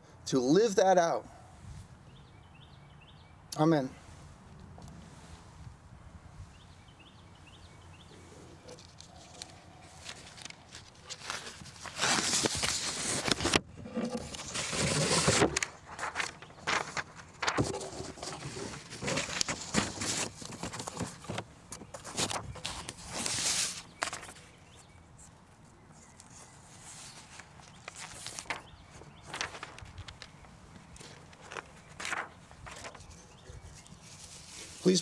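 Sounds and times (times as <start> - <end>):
paper rustling and shuffling: 8.5 - 35.0.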